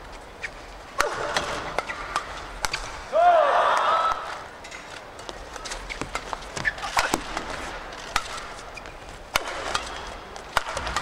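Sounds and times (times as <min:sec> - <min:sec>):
rackets striking shuttlecock: 0:01.0 - 0:03.1, 0:05.2 - 0:11.0
shoes squeaking on court: 0:04.7 - 0:10.2.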